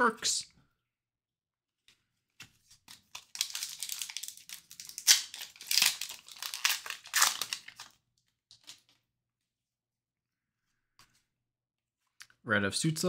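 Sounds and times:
foil wrapper crinkling and tearing: 2.9s - 8.9s.

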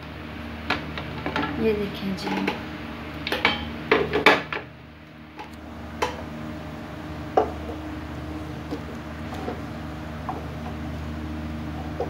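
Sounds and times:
steady low hum: 0.0s - 12.0s
wooden spoon stirring in pot: 7.4s - 11.1s.

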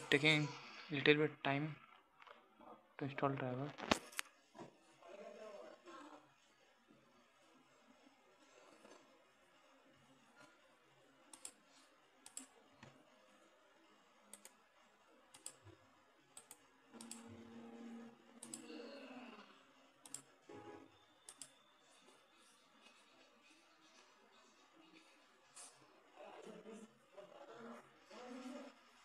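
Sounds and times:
computer mouse clicks: 11.3s - 11.6s, 12.2s - 13.0s, 14.3s - 14.6s, 15.3s - 15.6s, 16.4s - 17.2s, 18.4s - 18.7s, 20.0s - 20.3s, 21.2s - 21.6s.

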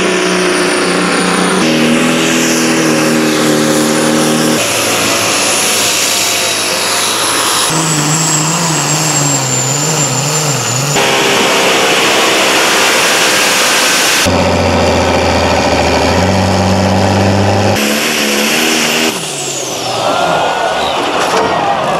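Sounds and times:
tractor engines under load: 0.0s - 21.9s.

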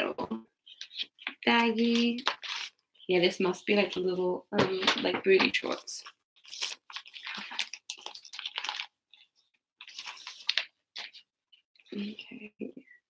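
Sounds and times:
plastic bag crinkling: 6.4s - 11.2s.

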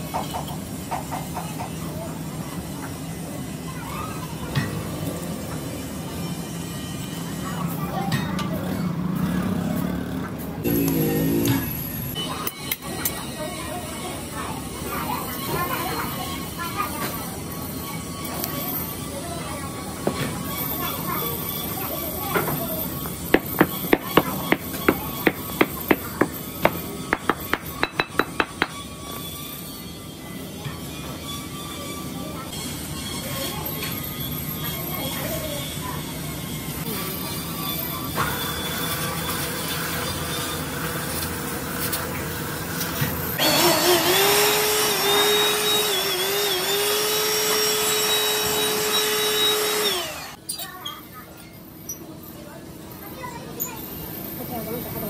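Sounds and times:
hammer rapping: 23.4s - 28.8s
electric blower motor whine: 43.4s - 50.4s.

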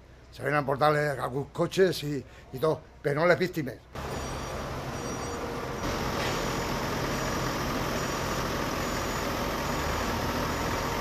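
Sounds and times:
armoured vehicle engine running: 4.0s - 11.0s.

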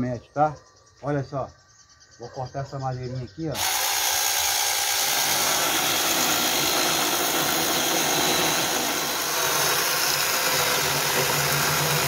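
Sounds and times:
chainsaw cutting wood: 3.6s - 12.0s.

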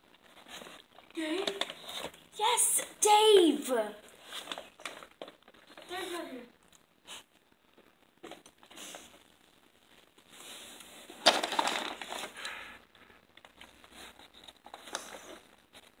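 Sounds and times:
plastic snack bag crinkling: 11.2s - 12.7s.

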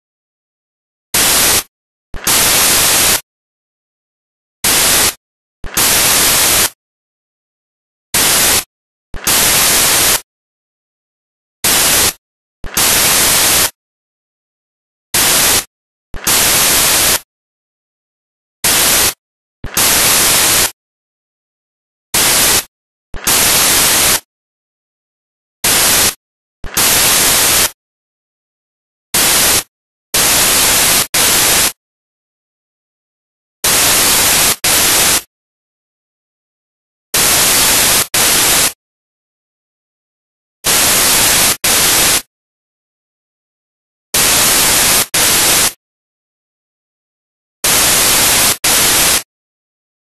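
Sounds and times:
white noise static bursts: 1.2s - 3.2s, 4.6s - 6.8s, 8.2s - 10.3s, 11.6s - 13.8s, 15.2s - 17.3s, 18.6s - 20.8s, 22.2s - 24.3s, 25.6s - 27.8s, 29.2s - 31.8s, 33.6s - 35.3s, 37.2s - 38.8s, 40.7s - 42.3s, 44.2s - 45.8s, 47.6s - 49.3s.

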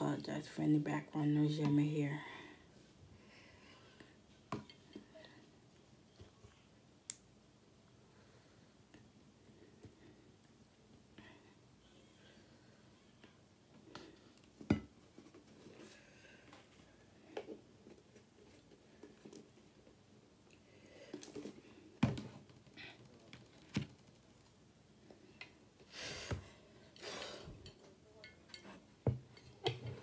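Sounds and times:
tableware clicks and knocks: 27.6s - 30.0s.

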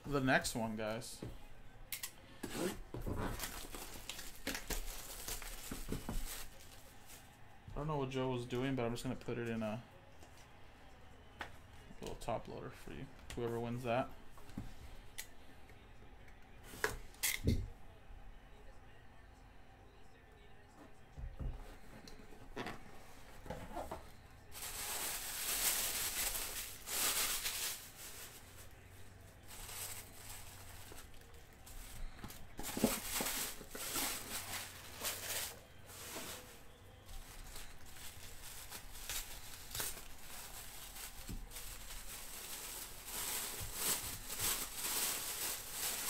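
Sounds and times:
tissue paper rustling and crinkling: 3.1s - 7.3s, 23.3s - 46.0s.

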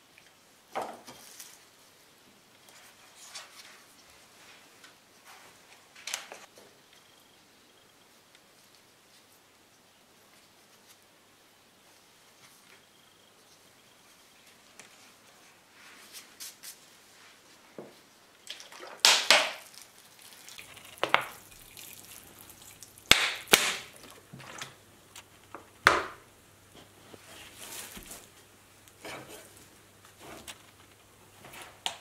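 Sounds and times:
water splashing onto soil: 18.5s - 24.7s.

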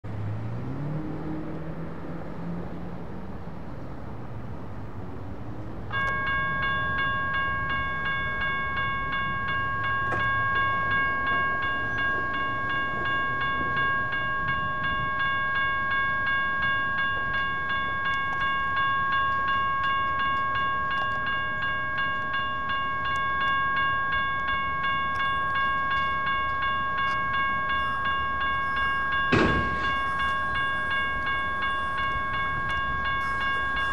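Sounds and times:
car passing: 0.1s - 15.7s
railroad crossing bells ringing: 5.6s - 33.9s.

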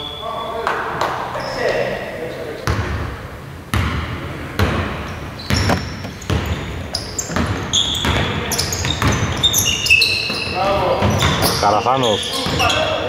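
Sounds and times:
sneakers squeaking on floor: 0.0s - 2.0s, 3.8s - 13.0s
basketball dribbling: 3.7s - 12.8s.

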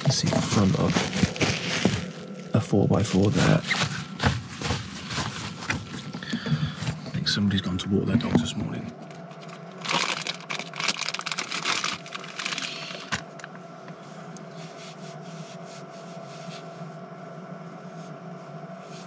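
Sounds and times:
steady hum: 0.0s - 19.0s
plastic packet crinkling: 0.1s - 5.8s, 9.3s - 13.4s.

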